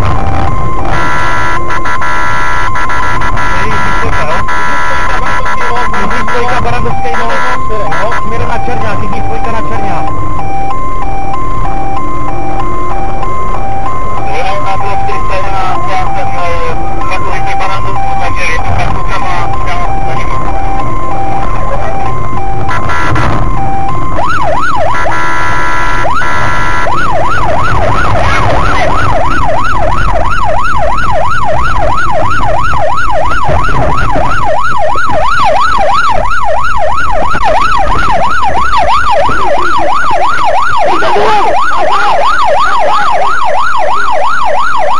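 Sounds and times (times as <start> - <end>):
police siren: 0.0 - 44.9
vehicle and road rumble: 0.0 - 44.9.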